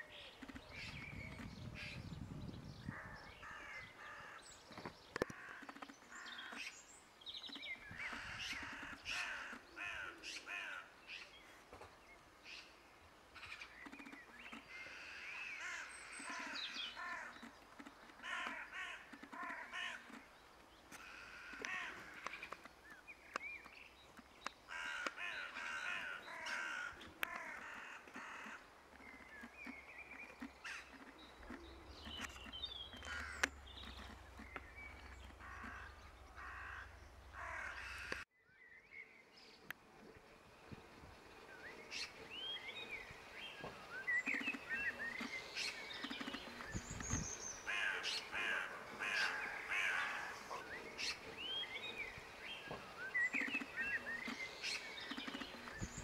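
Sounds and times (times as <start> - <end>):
magpies chattering: 25.3 - 38.2.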